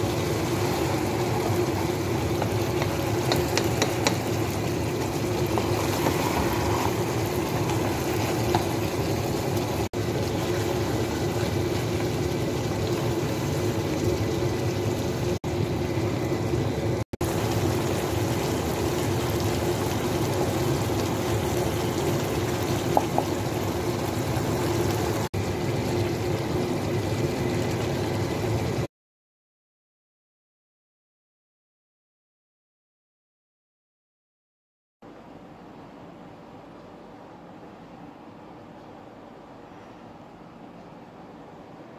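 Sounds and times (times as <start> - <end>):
chicken sizzling in sauce: 0.0 - 28.9.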